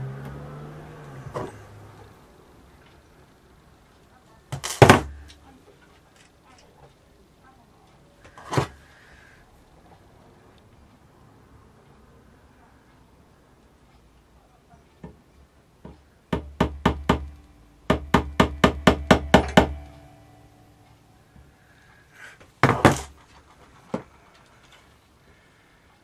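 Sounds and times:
hammer tapping on a nail: 0:15.8 - 0:20.0
clattering knock: 0:16.4 - 0:20.0.

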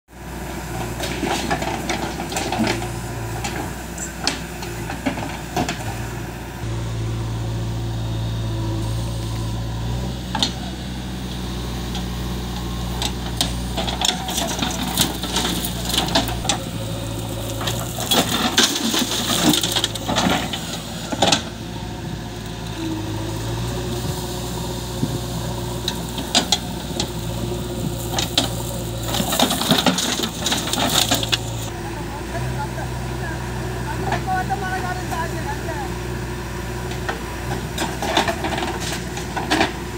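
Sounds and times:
diesel engine running: 0:00.1 - 0:39.9
earth and stones clattering into trolley: 0:13.5 - 0:16.6, 0:17.2 - 0:21.5, 0:28.0 - 0:31.7.

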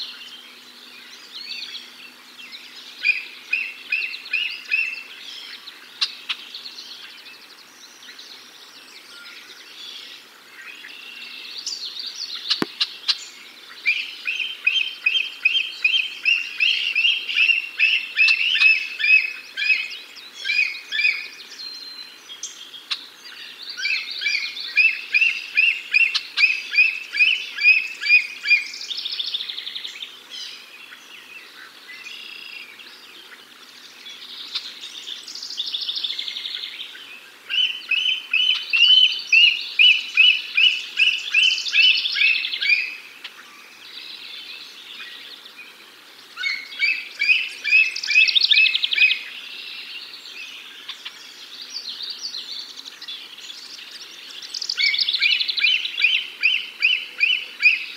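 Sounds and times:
bird twittering: 0:34.0 - 0:45.3, 0:46.4 - 0:57.9.

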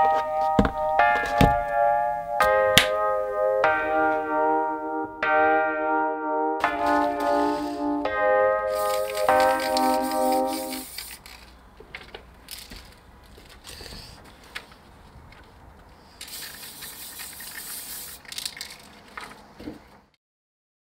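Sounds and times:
spray-paint can hissing: 0:08.7 - 0:11.4, 0:16.0 - 0:18.8
clicks and rustles of can: 0:16.2 - 0:19.5.

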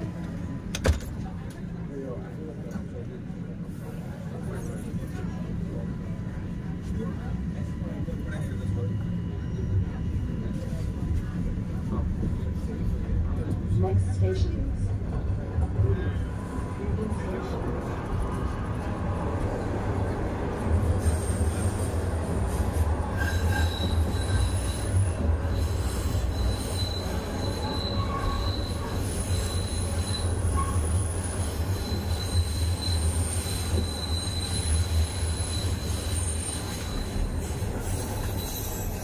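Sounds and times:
subway train rumble: 0:00.0 - 0:39.0
high-pitched wheel squeal: 0:23.1 - 0:39.0.

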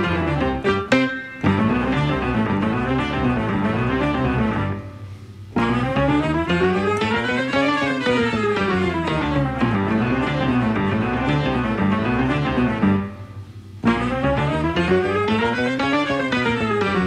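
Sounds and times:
instrumental background music: 0:00.0 - 0:17.0.

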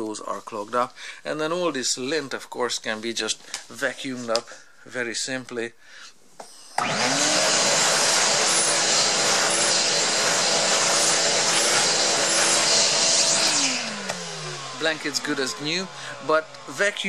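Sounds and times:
vacuum cleaner motor whining: 0:06.8 - 0:17.0.

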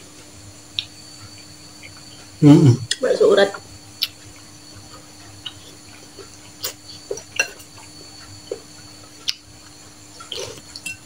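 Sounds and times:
cutlery clinking on ceramic bowls: 0:07.1 - 0:07.8, 0:10.3 - 0:11.0.

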